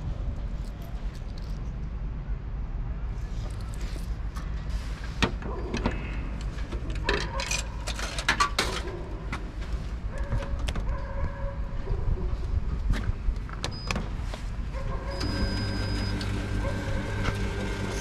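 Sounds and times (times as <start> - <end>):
machine beep: 15.1 - 16.3.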